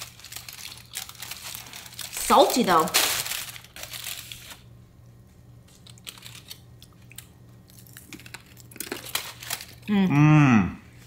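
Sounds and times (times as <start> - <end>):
chewing and crunching pork rinds: 0.0 - 2.8, 5.6 - 9.9.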